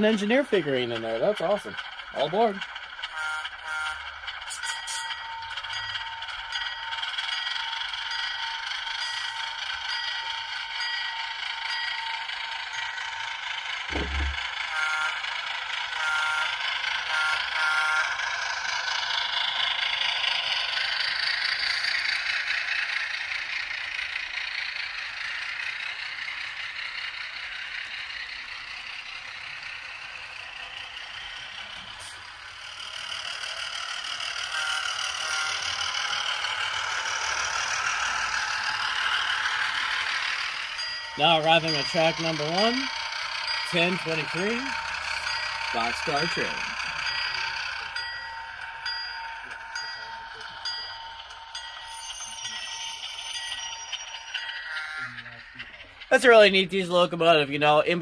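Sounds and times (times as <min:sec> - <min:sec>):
diesel engine sound: 0:00.0 - 0:58.0
locomotive bell ringing: 0:00.0 - 0:58.0
low thump: 0:13.9 - 0:14.4.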